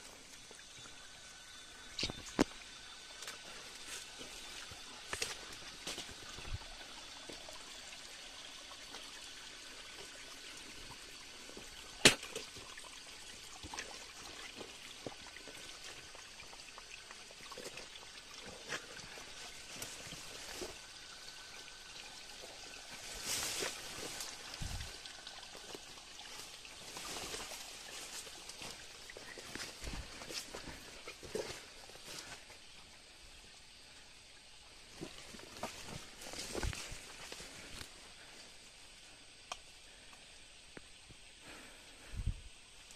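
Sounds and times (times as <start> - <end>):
water trickling: 0.0 - 42.1
faint ticks: 39.4 - 41.2.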